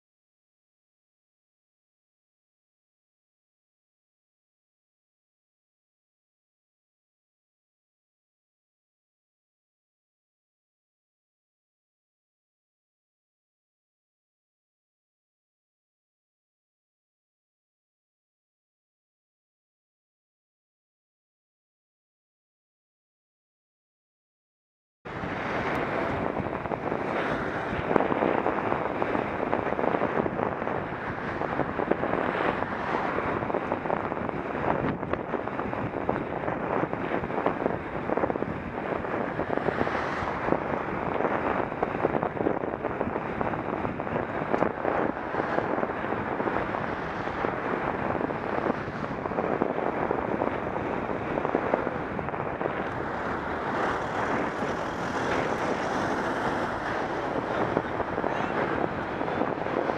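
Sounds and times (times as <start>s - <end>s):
wind noise on microphone: 25.1s - 59.9s.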